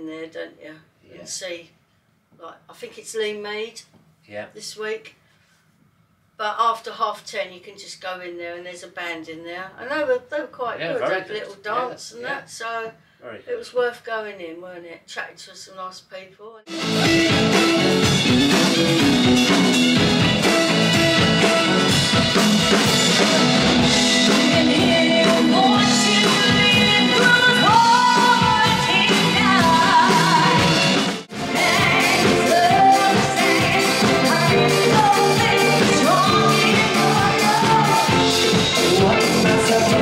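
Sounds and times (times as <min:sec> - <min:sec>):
drums: 0:16.7 - 0:40.0
live band playing: 0:16.7 - 0:40.0
person singing: 0:24.1 - 0:40.0.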